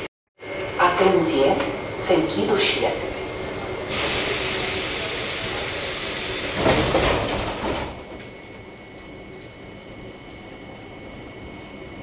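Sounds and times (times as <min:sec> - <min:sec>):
pneumatic door air hiss: 0:03.9 - 0:07.0.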